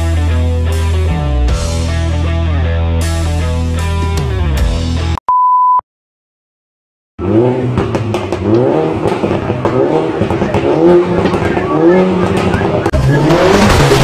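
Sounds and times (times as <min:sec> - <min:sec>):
short pure beep: 0:05.2 - 0:05.8
car engine revving: 0:07.2 - 0:14.0.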